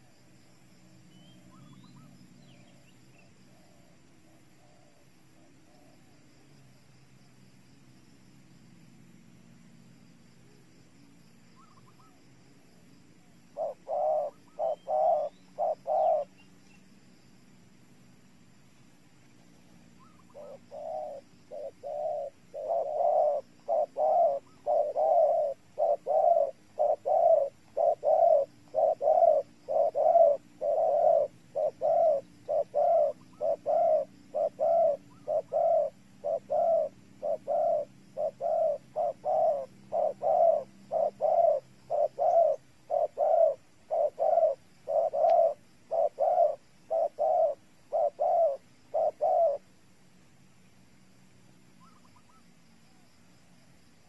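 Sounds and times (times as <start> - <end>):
dove cooing: 1.2 - 6.1, 11.6 - 12.2, 13.2 - 16.7, 19.3 - 49.8, 51.8 - 53.1.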